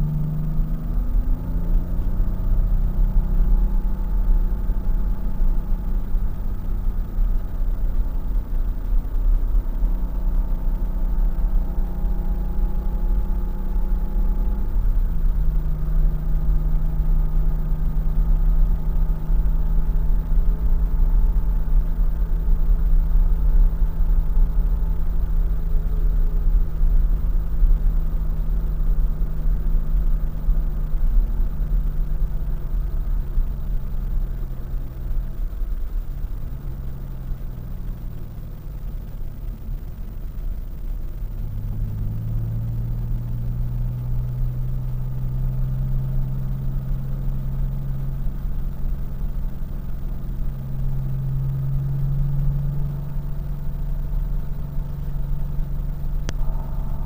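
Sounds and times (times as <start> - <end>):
car engine from inside cabin: 0.0 - 57.0
road and wind rumble: 0.0 - 57.0.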